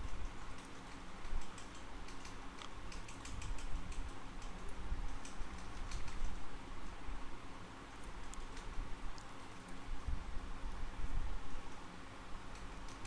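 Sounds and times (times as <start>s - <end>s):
keyboard and mouse clicking: 0.0s - 6.4s, 12.5s - 13.0s
steady low hum: 0.0s - 13.0s.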